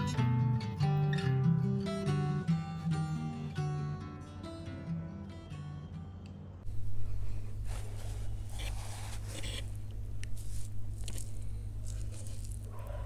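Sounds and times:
low hum: 6.6 - 13.0.

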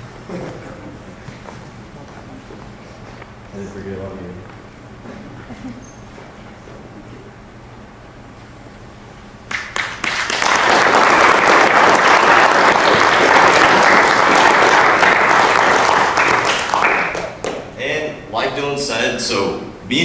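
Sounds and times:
audience applauding: 9.5 - 17.7.

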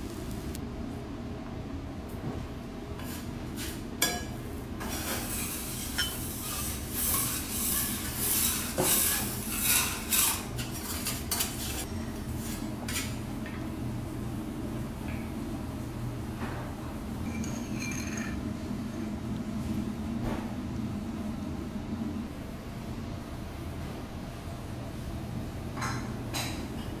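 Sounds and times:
metal spoon scraping a bowl: 4.8 - 11.9.

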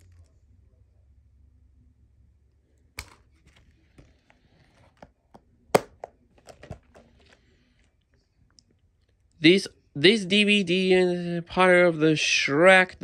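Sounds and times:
plastic case clicks and taps: 5.8 - 7.0.

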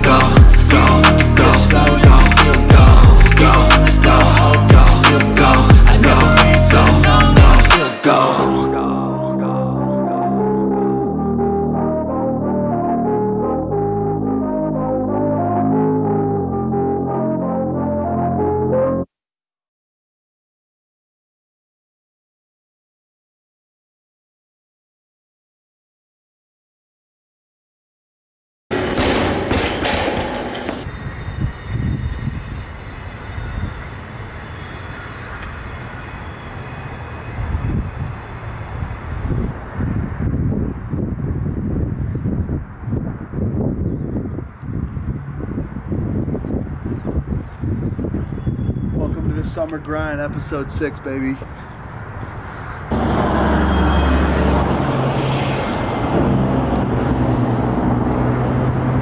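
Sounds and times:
loud noisy burst: 28.7 - 31.5, 52.9 - 58.1
wind buffeting microphone: 37.4 - 59.0
car engine and road rumble: 51.2 - 59.0.

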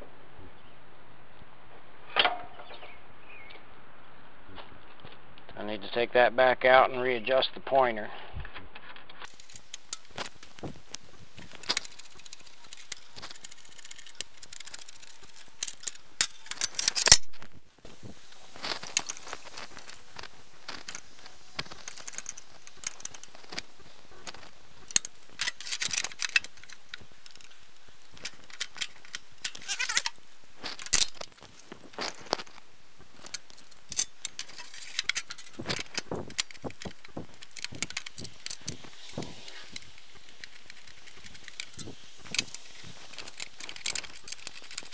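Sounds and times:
hand tools clinking on metal parts: 33.1 - 44.9.

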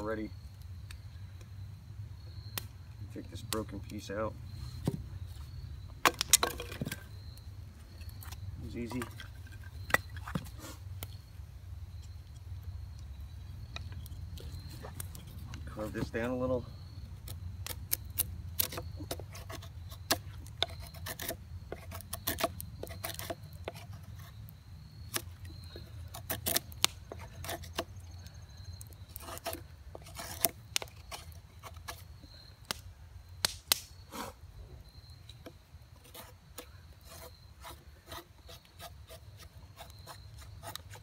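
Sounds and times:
knife shaving wood: 17.2 - 32.8, 36.0 - 41.0
sharp clicks of cuts: 33.4 - 33.9.

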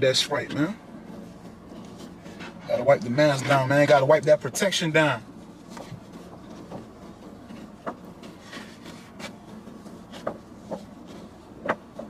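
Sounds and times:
low steady hum: 0.0 - 12.0
wipe rubbing plastic face shield: 0.9 - 3.6, 5.3 - 12.0.

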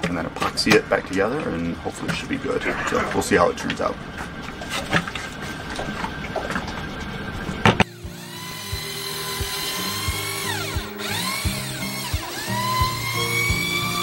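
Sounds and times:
background music: 7.9 - 14.0.

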